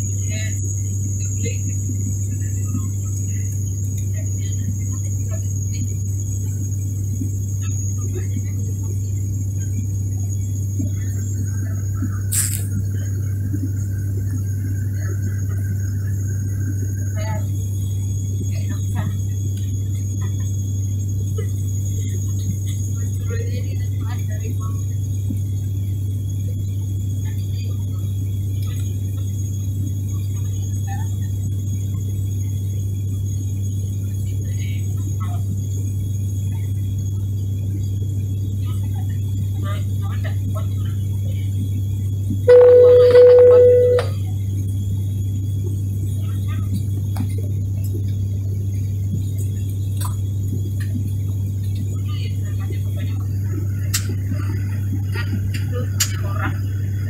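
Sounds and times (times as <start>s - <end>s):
turboprop engines droning in cabin: 0.0s - 57.0s
high whine: 42.5s - 44.3s.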